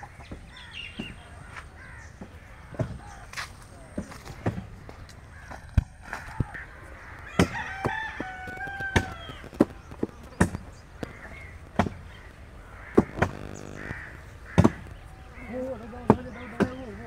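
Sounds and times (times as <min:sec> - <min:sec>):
rooster crowing: 0:07.2 - 0:09.5.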